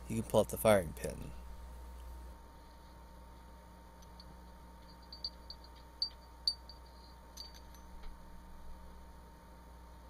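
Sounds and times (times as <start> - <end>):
faint steady hum: 0.0 - 10.0
small steel parts clicking: 4.0 - 8.2.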